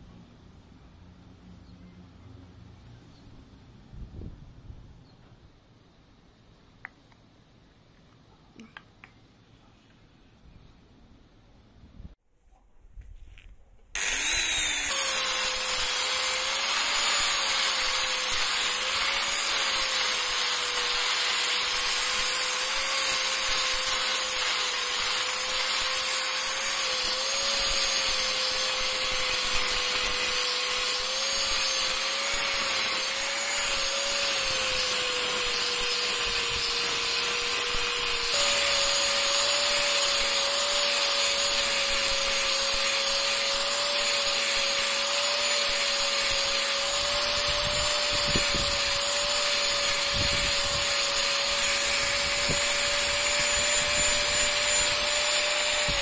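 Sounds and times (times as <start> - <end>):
angle grinder sanding: 14.0 - 56.0.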